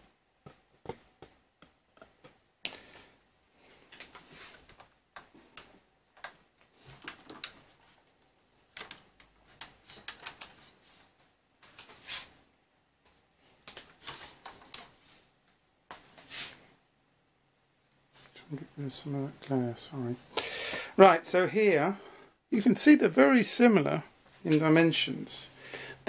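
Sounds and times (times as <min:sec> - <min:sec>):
rustling scrapes: 0:10.6 - 0:12.4, 0:16.0 - 0:16.7.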